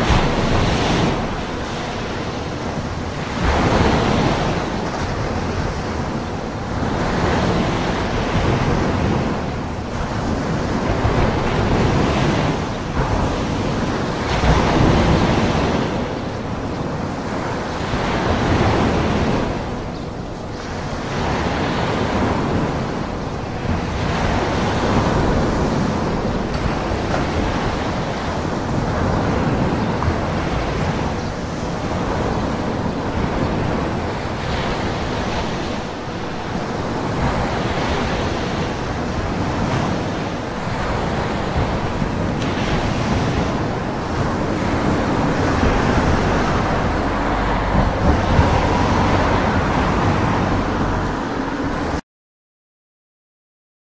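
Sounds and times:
ocean waves breaking: 0:00.0 - 0:52.0.

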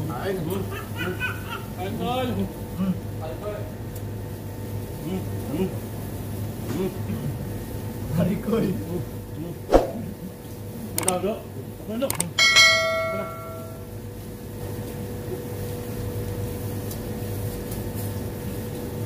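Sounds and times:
steady hum: 0:09.5 - 0:10.4, 0:12.1 - 0:14.1
metal strike ringing like bell: 0:12.4 - 0:13.9.

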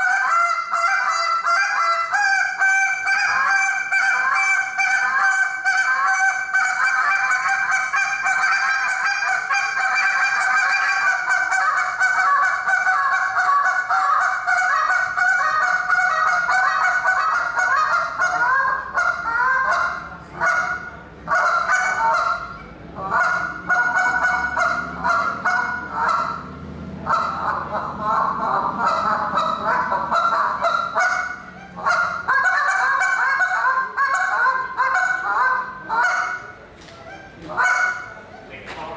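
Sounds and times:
goose call honking: 0:00.0 - 0:38.6.

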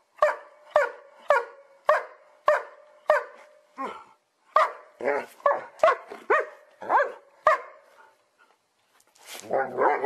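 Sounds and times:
dog barking: 0:00.2 - 0:03.4, 0:04.6 - 0:07.8.

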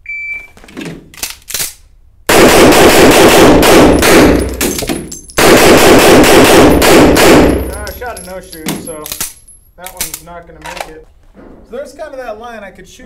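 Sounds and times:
rapid pistol fire echoing indoors: 0:02.3 - 0:07.8.

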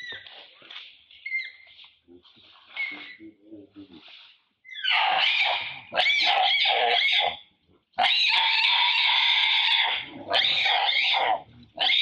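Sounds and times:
monkey screaming: 0:04.7 - 0:07.3, 0:08.0 - 0:12.0.

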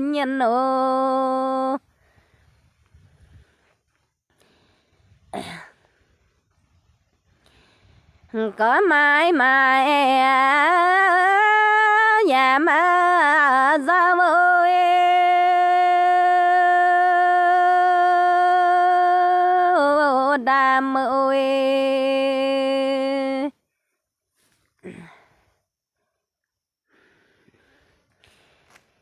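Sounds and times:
person singing unaccompanied: 0:00.0 - 0:01.8, 0:08.3 - 0:23.6.

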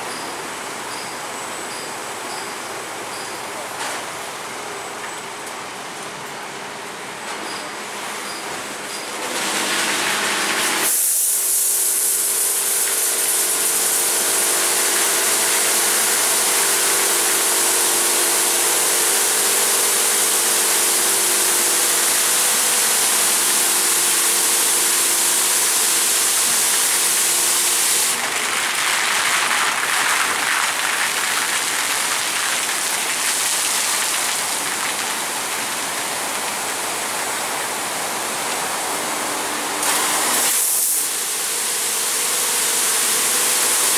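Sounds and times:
water jets spraying car: 0:09.3 - 0:38.3.

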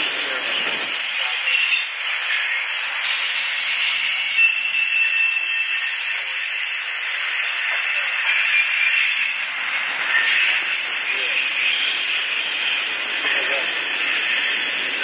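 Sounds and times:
freight train wheels hissing on rails: 0:00.0 - 0:15.0
high-pitched wheel squeal: 0:03.9 - 0:07.0, 0:08.2 - 0:09.4.

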